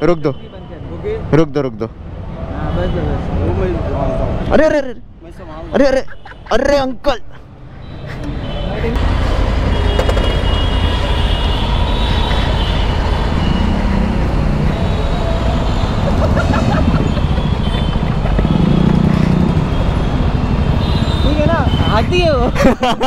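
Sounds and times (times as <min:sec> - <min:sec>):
traffic: 0:00.0 - 0:23.0
motorcycle engine rumbling: 0:09.0 - 0:23.0.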